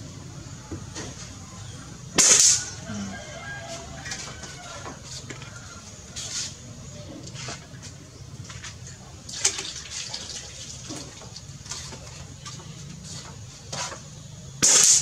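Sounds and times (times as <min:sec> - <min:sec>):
low steady hum: 0:00.0 - 0:14.6
air rifle shot crack: 0:02.2 - 0:02.7.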